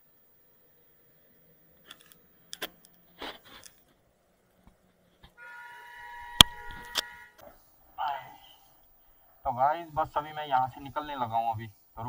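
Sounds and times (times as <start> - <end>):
faint clicks and rustles: 0.8 - 5.4.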